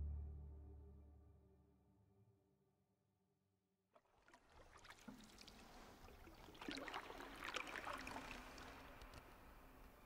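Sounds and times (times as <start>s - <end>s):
paddle splashes and drips: 3.9s - 9.8s.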